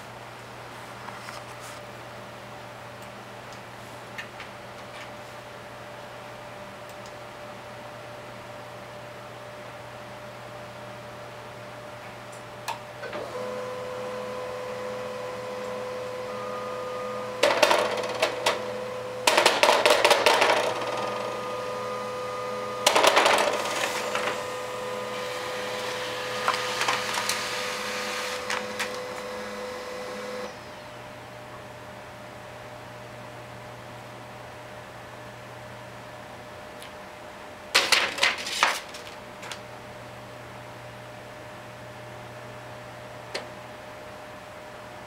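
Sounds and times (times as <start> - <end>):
printer whine: 13.0 - 31.1
printer clattering and knocking: 17.4 - 21.2, 22.8 - 24.5, 37.8 - 38.9
printer click: 22.8 - 24.5, 25.8 - 29.4.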